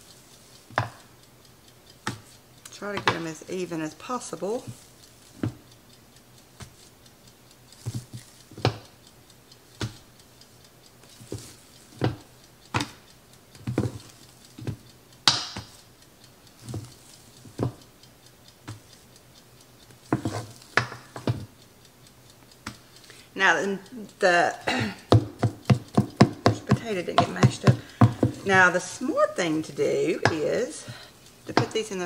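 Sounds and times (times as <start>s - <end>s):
wooden spatula knocking on metal pot: 0.7s - 1.0s, 2.0s - 2.2s, 2.8s - 3.4s, 5.4s - 5.6s, 7.9s - 8.8s, 12.0s - 13.0s, 13.6s - 14.0s, 14.6s - 15.8s, 17.6s - 17.8s, 20.1s - 21.5s, 24.7s - 32.0s.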